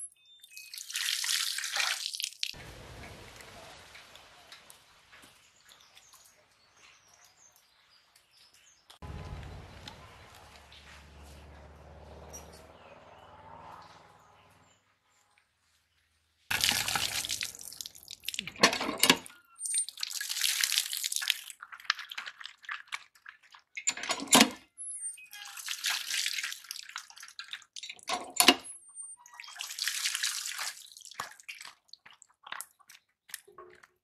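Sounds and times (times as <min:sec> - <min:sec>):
water gushing and splashing: 0:00.8 - 0:05.7, 0:16.5 - 0:19.2, 0:19.8 - 0:23.7, 0:29.4 - 0:32.8.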